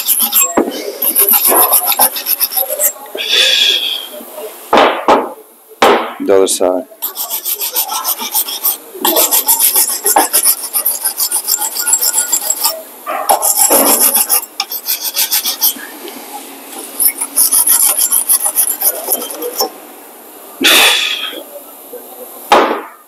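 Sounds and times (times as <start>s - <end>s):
wire brush scrubbing metal: 0.0s - 3.0s, 7.0s - 15.9s, 16.7s - 19.7s.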